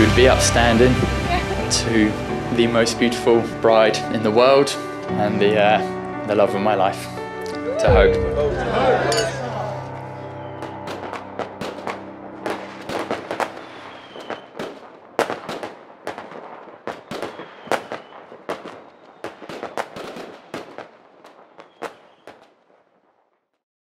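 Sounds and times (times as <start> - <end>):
fireworks bangs and crackles: 0.0 - 4.8, 10.3 - 23.6
faint short firework whistles: 13.4 - 14.7, 17.0 - 20.6, 21.6 - 22.5.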